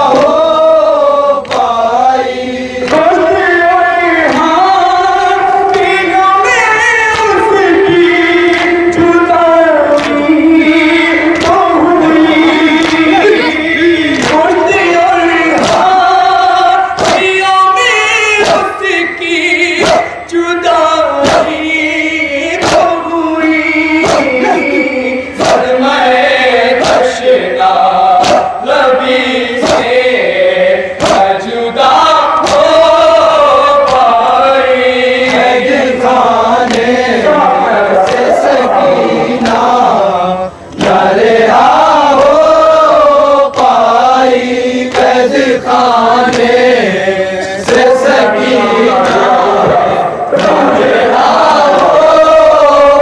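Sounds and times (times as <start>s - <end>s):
group of men chanting: 0.0s - 53.0s
men singing over microphones: 0.0s - 53.0s
hands slapping chests: 11.4s - 11.7s, 12.4s - 13.5s, 16.9s - 17.3s, 19.8s - 20.2s, 21.2s - 21.6s, 22.6s - 23.0s, 24.0s - 24.8s, 25.4s - 25.7s, 26.8s - 27.1s, 28.2s - 28.6s, 29.6s - 30.0s, 31.0s - 31.3s, 32.4s - 32.8s, 33.8s - 34.1s, 38.0s - 39.7s, 46.2s - 46.7s, 48.9s - 52.0s.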